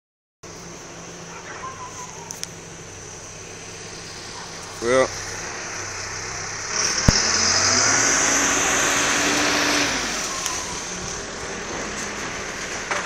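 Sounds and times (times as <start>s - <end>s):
vehicle passing by: 3.0s - 13.0s.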